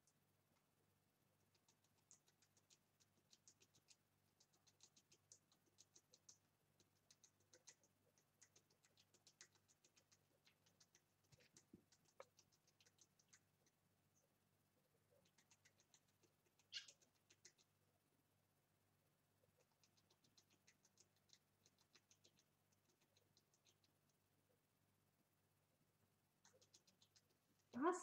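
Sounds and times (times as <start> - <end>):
rats clicking: 1.4 - 13.8, 15.1 - 17.8, 19.6 - 24.2, 26.4 - 27.8.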